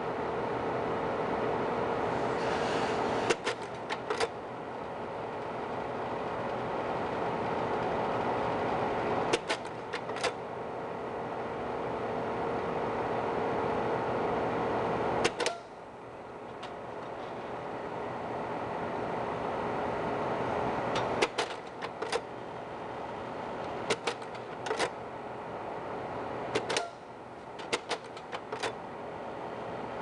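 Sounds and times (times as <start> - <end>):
projector fan humming: 0.0 - 30.0
slide-change mechanism clicking: 23.6 - 25.0, 26.6 - 28.8.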